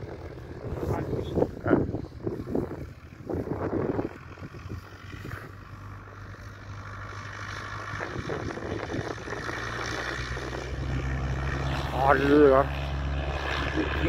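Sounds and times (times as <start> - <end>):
propeller aircraft engine drone: 0.0 - 14.0.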